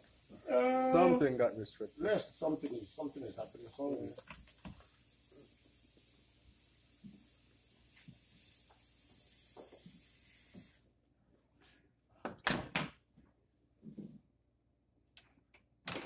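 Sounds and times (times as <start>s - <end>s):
gas hissing from pipe: 0.0s - 10.8s.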